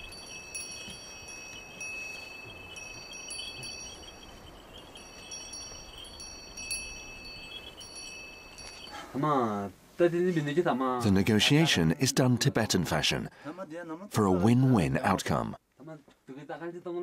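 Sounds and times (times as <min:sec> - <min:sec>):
harness bells ringing: 0:00.0 - 0:09.3
man's voice: 0:10.4 - 0:15.6.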